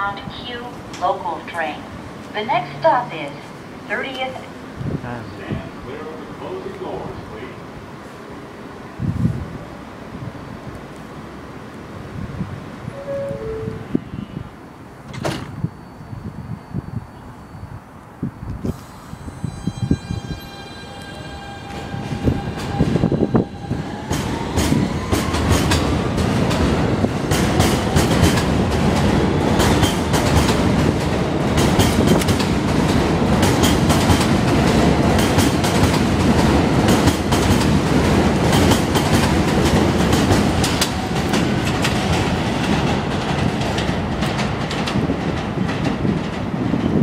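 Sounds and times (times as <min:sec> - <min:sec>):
train cars rumbling: 0:18.5 - 0:47.0.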